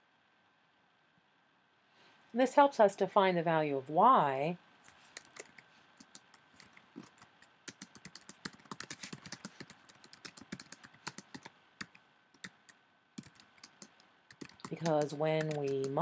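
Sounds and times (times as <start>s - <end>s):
keyboard typing: 4.9s - 16.0s.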